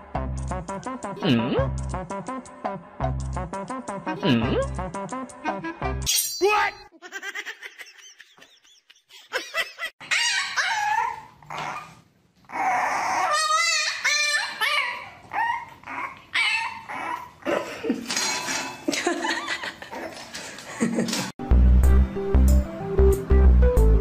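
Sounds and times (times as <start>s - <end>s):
dog yipping and whining: 10.0s - 17.4s.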